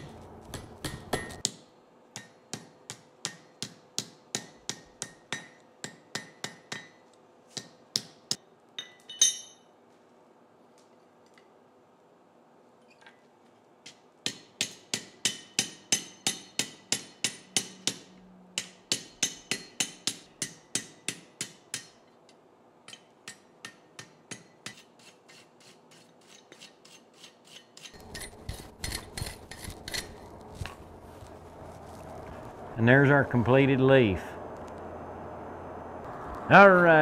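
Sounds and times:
hammer striking hot steel on anvil: 0:00.0 - 0:09.7, 0:13.9 - 0:22.1, 0:22.8 - 0:25.4, 0:26.0 - 0:30.7
low rumble: 0:28.0 - 0:36.8.

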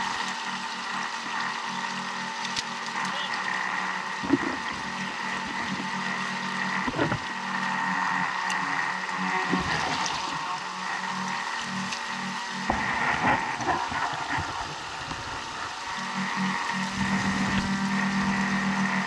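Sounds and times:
stream rushing over rocks: 0:12.6 - 0:19.0.

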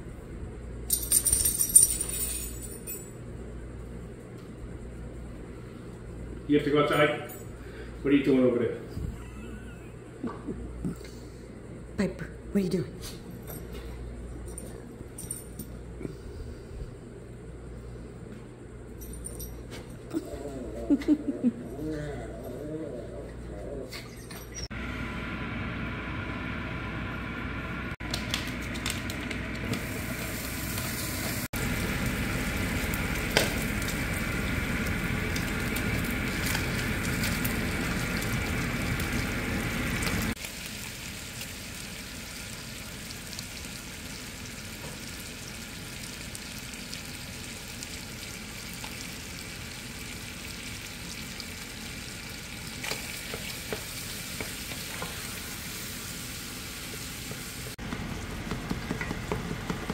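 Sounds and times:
food sizzling in a pan: 0:29.6 - 0:57.8.

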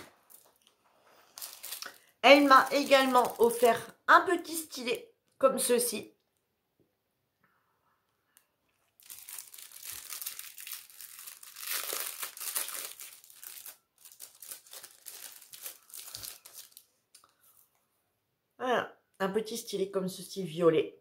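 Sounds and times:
plastic sleeve crinkling: 0:00.0 - 0:03.9, 0:08.7 - 0:17.6.

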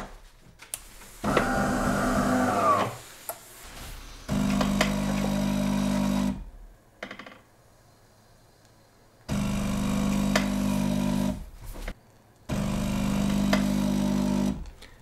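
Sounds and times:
espresso machine pump buzzing: 0:01.2 - 0:03.0, 0:04.3 - 0:06.5, 0:09.3 - 0:11.5, 0:12.5 - 0:14.7.

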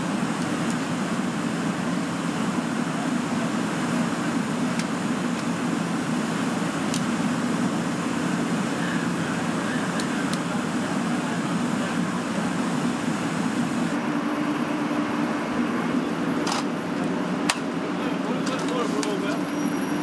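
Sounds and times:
hiss: 0:00.0 - 0:14.0
machinery engine drone: 0:00.0 - 0:20.0.

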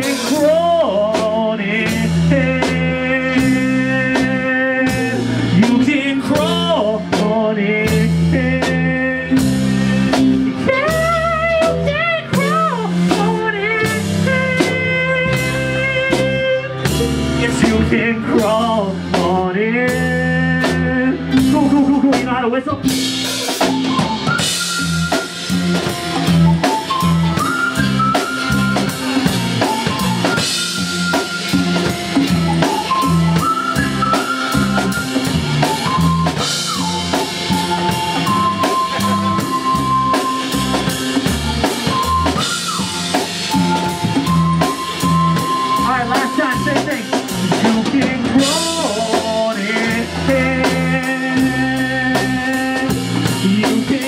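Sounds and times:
bass guitar: 0:00.0 - 0:54.0
drum kit beat: 0:00.0 - 0:54.0
sliding high melody line: 0:22.9 - 0:53.9.

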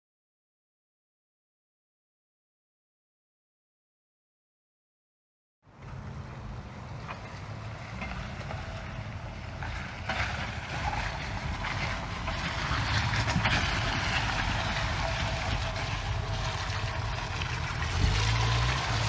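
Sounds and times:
truck engine running low: 0:05.7 - 0:19.0
tyres crunching over stones: 0:07.0 - 0:19.0.

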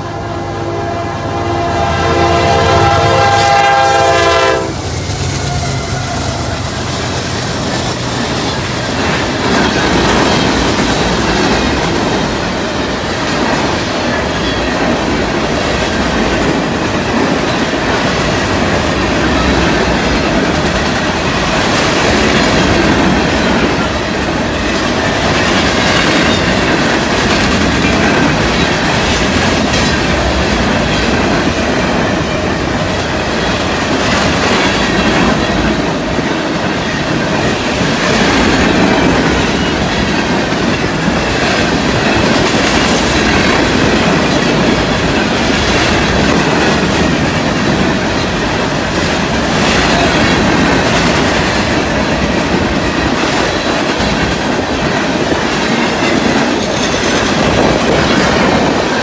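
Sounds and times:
freight train wheels clattering: 0:03.0 - 0:59.0.

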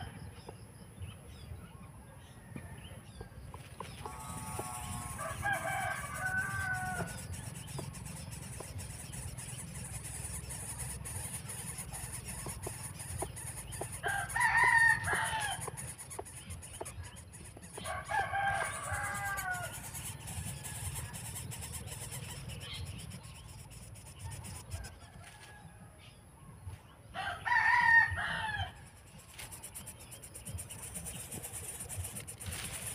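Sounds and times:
steady high-pitched hum: 0:03.8 - 0:25.0, 0:28.1 - 0:32.9
rooster crowing: 0:04.0 - 0:07.4, 0:13.8 - 0:15.8, 0:17.7 - 0:21.3, 0:27.2 - 0:28.8.

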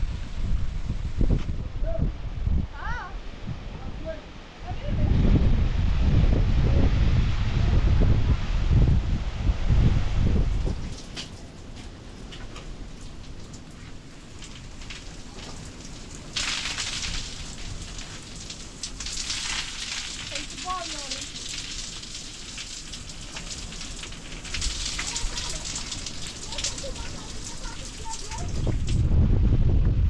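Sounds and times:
wind on microphone: 0:00.0 - 0:11.4, 0:23.5 - 0:30.0
shower water splashing on body: 0:10.5 - 0:29.1.

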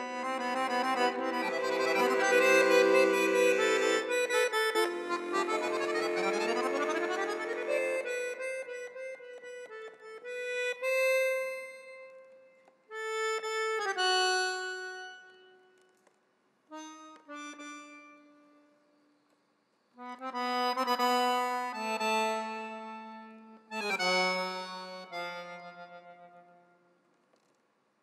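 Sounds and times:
accordion playing: 0:00.0 - 0:11.9, 0:20.0 - 0:26.3.

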